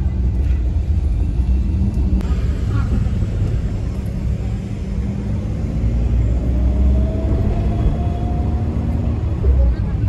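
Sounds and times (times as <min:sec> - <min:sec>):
constant hum: 0:00.0 - 0:05.7
engine and tyre rumble: 0:00.0 - 0:10.0.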